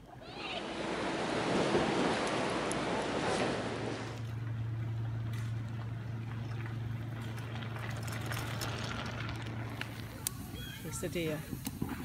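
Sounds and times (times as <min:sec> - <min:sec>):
low machine hum: 0:00.0 - 0:12.0
bicycle tyres crunching on gravel: 0:06.3 - 0:12.0.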